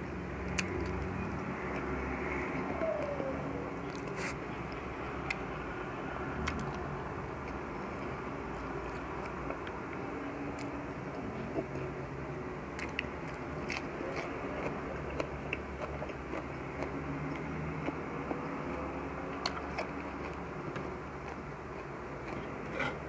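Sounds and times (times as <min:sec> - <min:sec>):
man chewing food: 0:06.4 - 0:12.0, 0:12.7 - 0:23.0.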